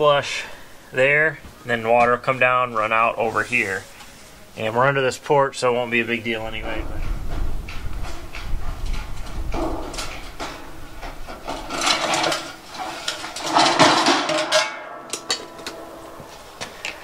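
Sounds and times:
metal trim clattering on concrete: 0:08.4 - 0:16.0.

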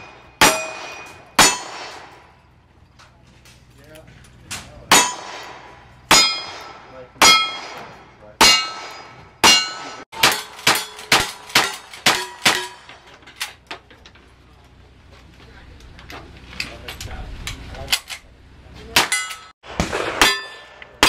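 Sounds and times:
rifle shots: 0:00.0 - 0:02.3, 0:04.9 - 0:12.8, 0:19.0 - 0:21.0
steel target ringing: 0:00.0 - 0:02.5, 0:04.9 - 0:13.0, 0:19.0 - 0:21.0.

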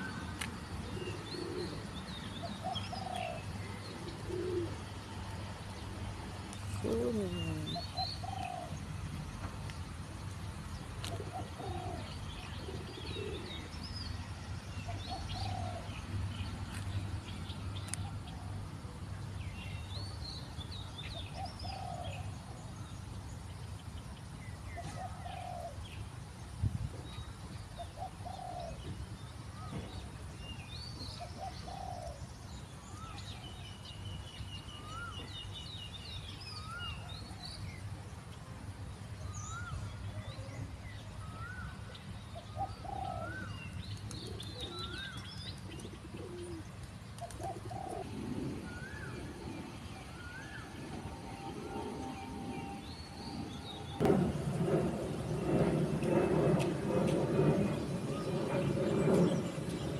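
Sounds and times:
doves cooing: 0:00.8 - 0:05.2, 0:06.6 - 0:08.7, 0:11.1 - 0:13.7, 0:15.0 - 0:15.9, 0:28.0 - 0:28.8, 0:31.3 - 0:32.2, 0:42.5 - 0:49.5
small birds chirping: 0:06.5 - 0:18.5
steady low rumble: 0:48.0 - 0:59.9.

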